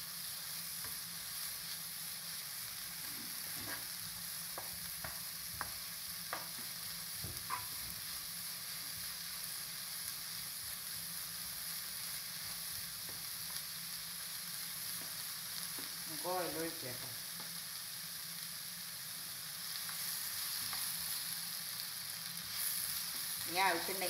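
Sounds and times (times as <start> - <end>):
onions sizzling in a pan: 0.0 - 24.0
utensil scraping a pan: 3.0 - 3.9.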